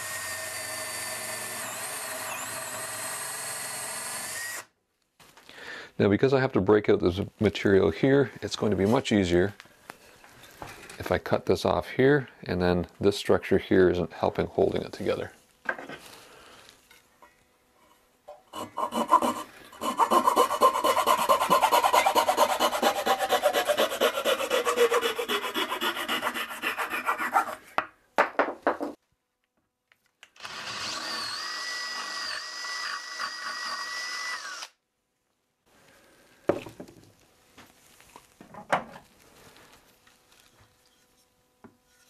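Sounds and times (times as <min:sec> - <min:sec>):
hand saw cutting wood: 0:18.5 - 0:27.6.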